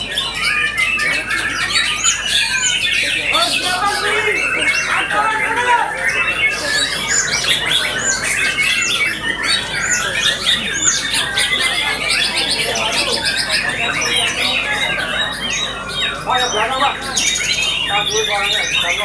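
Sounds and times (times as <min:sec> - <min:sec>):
chorus of birds singing: 0:00.0 - 0:19.0.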